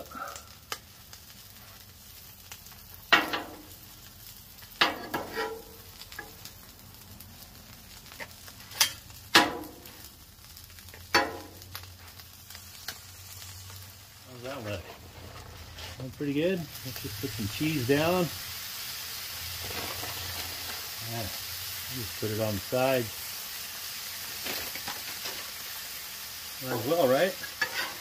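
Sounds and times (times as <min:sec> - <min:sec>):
food sizzling: 0:00.0 - 0:28.0
metal spatulas clanking on griddle: 0:03.1 - 0:03.6, 0:04.8 - 0:06.3, 0:08.7 - 0:09.8, 0:11.1 - 0:11.5, 0:26.7 - 0:28.0.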